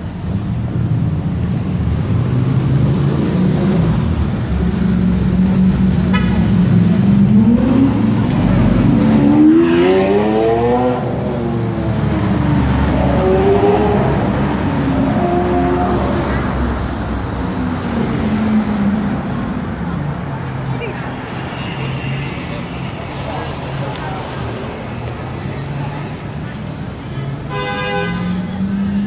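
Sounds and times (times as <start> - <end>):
engine revving: 6.6 - 16.8.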